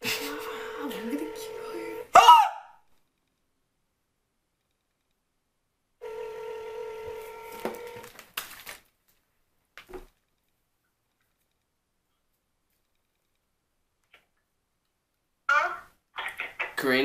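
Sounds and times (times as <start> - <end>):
telephone ringback tone: 0.0 - 2.1, 6.0 - 8.0.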